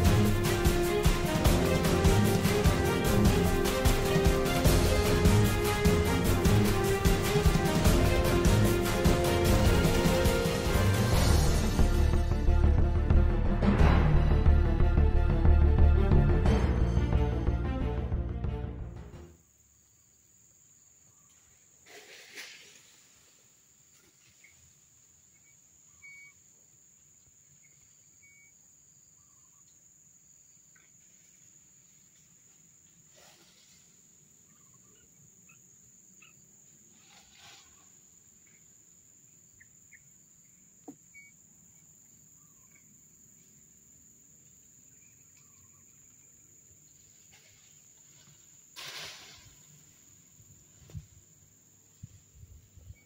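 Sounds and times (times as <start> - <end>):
high insect drone: 19.4 - 53.0
rustling: 21.8 - 24.9, 36.9 - 38.0
faint short chirps: 25.9 - 26.4, 28.2 - 28.6, 41.1 - 41.4.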